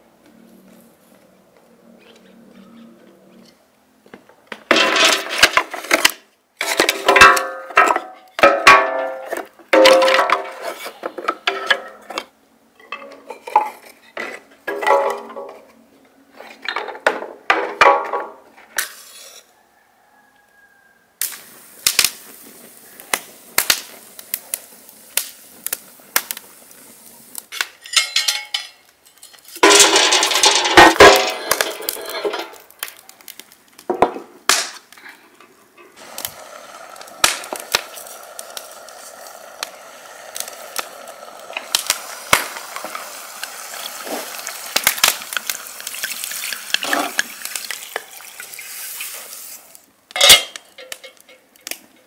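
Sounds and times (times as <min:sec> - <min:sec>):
firewood clattering into metal brazier: 0:04.5 - 0:15.7, 0:16.6 - 0:19.0, 0:27.5 - 0:34.9, 0:37.2 - 0:38.8, 0:50.1 - 0:52.0
wood fire crackling: 0:21.2 - 0:52.0
metal clatter: 0:29.6 - 0:32.6.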